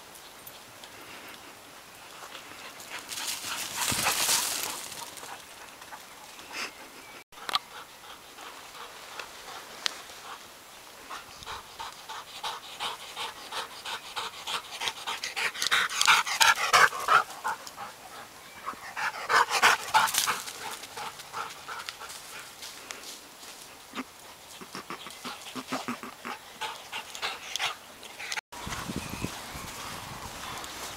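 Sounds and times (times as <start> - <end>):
dog panting hard: 7.5 - 10.4, 11.1 - 22.6, 24.8 - 28.4.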